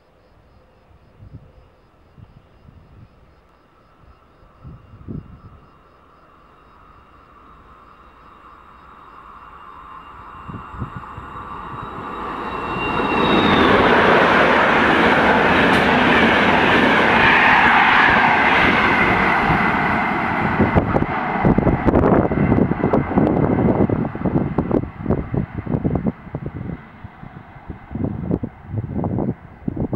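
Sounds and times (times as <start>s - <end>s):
train passing at speed: 0.5s - 29.9s
locomotive high whine: 2.7s - 29.9s
wind buffeting microphone: 4.5s - 5.8s, 10.0s - 29.9s.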